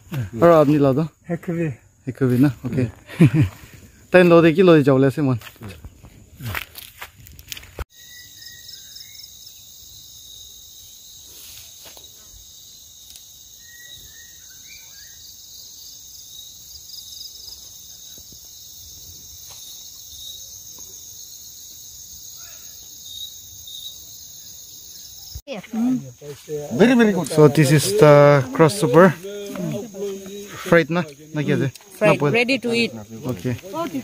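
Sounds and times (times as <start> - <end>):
insects trilling: 0.0 - 34.0
bird chirps: 7.9 - 9.6, 13.6 - 15.4.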